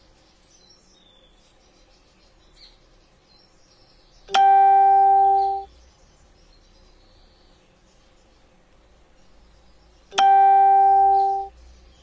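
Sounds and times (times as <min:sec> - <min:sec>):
loud steady beep: 0:04.3 - 0:05.7, 0:10.2 - 0:11.5.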